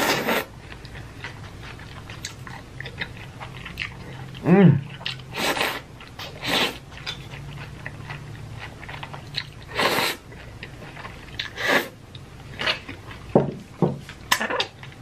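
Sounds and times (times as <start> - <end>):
person slurping noodles: 0.0 - 0.5, 5.3 - 6.8, 9.7 - 10.2
wet chewing: 0.2 - 13.3.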